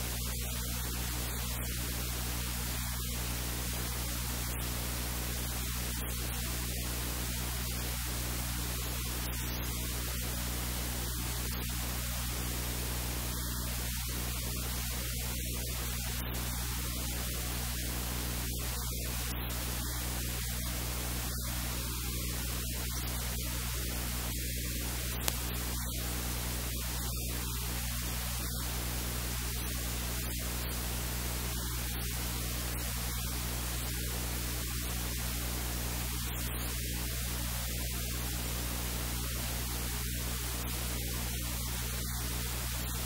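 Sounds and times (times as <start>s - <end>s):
low electrical hum: 0.0s - 43.0s
recording hiss: 0.0s - 43.0s
brief click: 25.2s - 25.5s.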